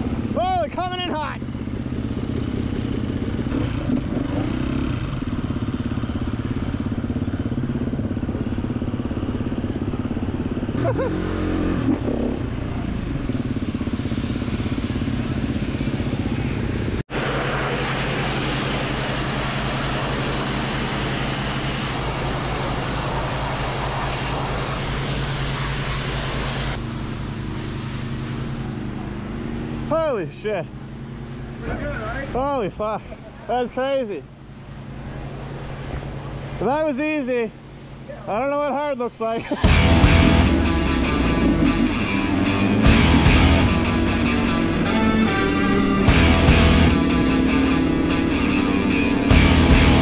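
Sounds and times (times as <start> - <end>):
pressure washer engine running: 0.0 - 11.6, 12.4 - 50.0
dirt bike engines idling: 0.0 - 50.0
water spray hissing: 13.2 - 29.5, 38.9 - 39.8.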